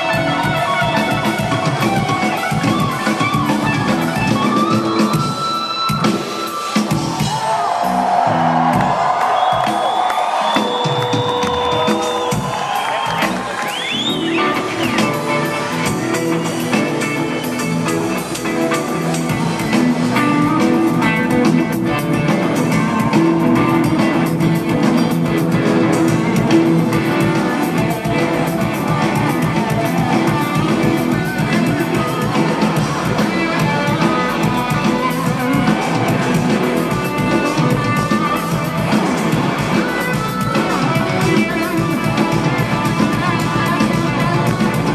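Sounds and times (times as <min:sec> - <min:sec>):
bass guitar: 0:00.0 - 0:10.0, 0:10.8 - 0:44.9
drum kit beat: 0:00.0 - 0:44.9
electric guitar: 0:00.0 - 0:44.9.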